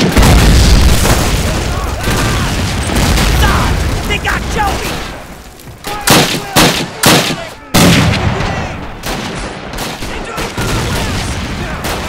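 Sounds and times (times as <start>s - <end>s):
sharp gunshots: 0.0s - 5.3s, 5.9s - 12.0s
distant battle noise: 0.0s - 12.0s.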